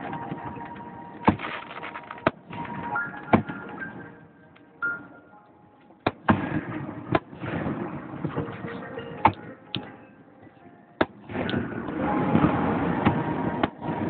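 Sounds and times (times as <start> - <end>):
fireworks crackling: 1.2 - 3.0.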